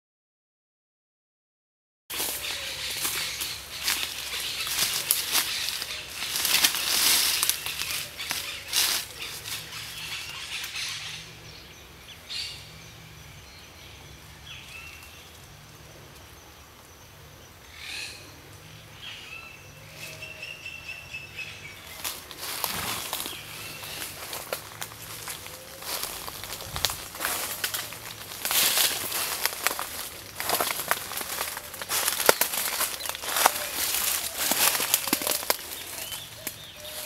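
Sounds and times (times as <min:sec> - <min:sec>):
dry leaves crunching underfoot: 0:02.1 - 0:11.2, 0:21.6 - 0:37.0.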